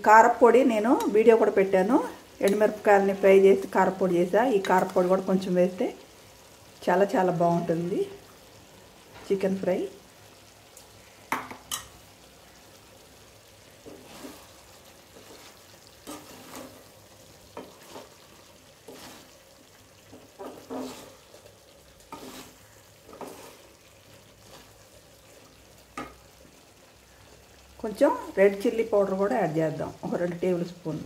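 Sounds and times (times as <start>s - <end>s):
faint sizzle of frying: 0.0s - 31.0s
wooden spatula scraping metal pan: 13.8s - 19.4s, 20.0s - 23.8s, 24.4s - 24.8s.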